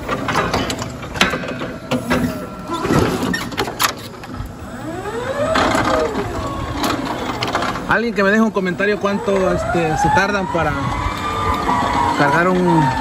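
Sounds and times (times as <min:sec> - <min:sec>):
forklift forks clunking: 0:00.0 - 0:04.4
electric motor whine: 0:04.5 - 0:07.5, 0:08.1 - 0:13.0.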